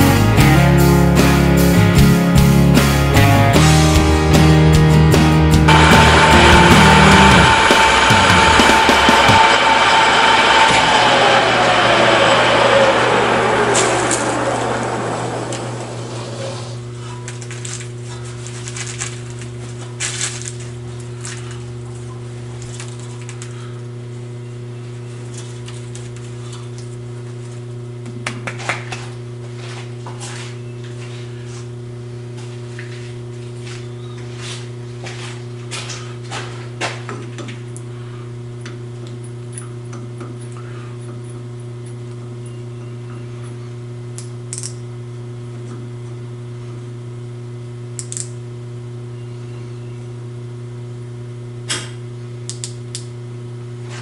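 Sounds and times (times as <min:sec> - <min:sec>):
low machine hum: 0:03.2 - 0:54.0.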